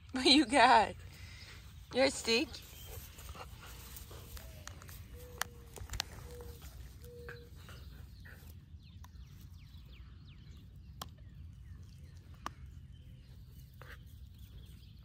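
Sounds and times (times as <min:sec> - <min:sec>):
birds chirping: 0:00.0 - 0:15.0
puppy gnawing wooden stick: 0:02.6 - 0:14.7.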